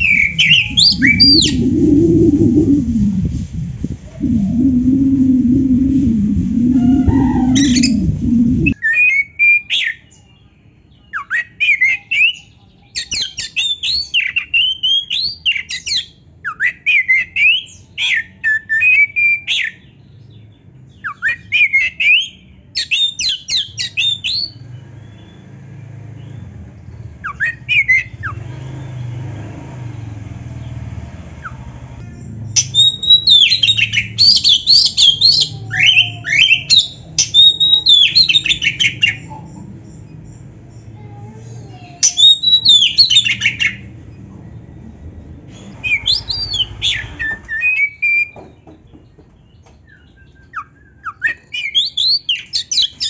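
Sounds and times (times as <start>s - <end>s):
bird singing whistles: 0.0s - 3.2s, 4.1s - 10.1s, 32.6s - 40.3s, 42.0s - 43.9s, 45.6s - 48.4s, 49.8s - 53.0s
faint low hum: 0.0s - 8.8s.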